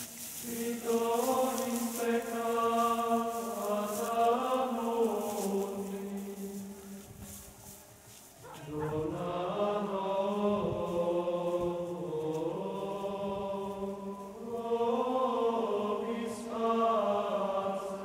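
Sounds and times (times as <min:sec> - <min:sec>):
men singing chant in unison: 0:00.4 - 0:07.0, 0:08.5 - 0:18.0.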